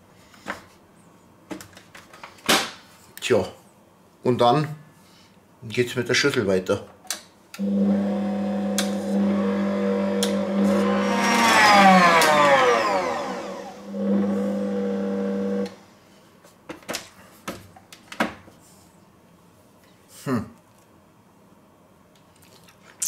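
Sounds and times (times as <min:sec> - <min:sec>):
stand mixer whirring: 0:07.6 - 0:15.6.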